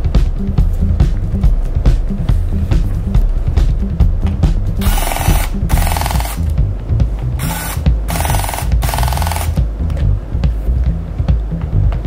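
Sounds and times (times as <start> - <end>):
music with low beat: 0.0 - 12.0
electric screwdriver running: 4.8 - 6.5, 7.4 - 9.6.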